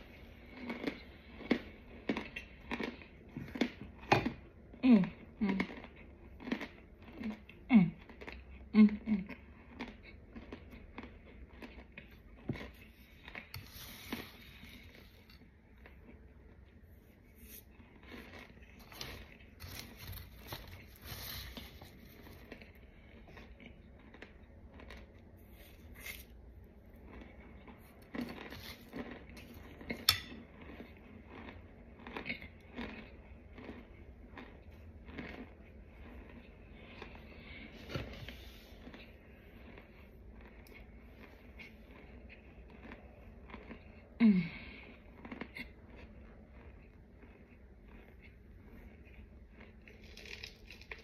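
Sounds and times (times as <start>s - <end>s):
metal spoon scraping a plate: 30.0s - 30.4s
spoon clicking on plate: 30.1s - 30.3s.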